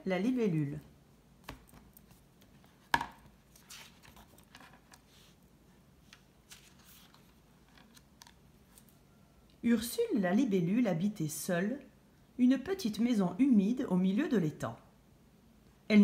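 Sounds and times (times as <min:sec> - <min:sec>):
book pages turning: 0:01.4 - 0:05.4, 0:06.0 - 0:08.9.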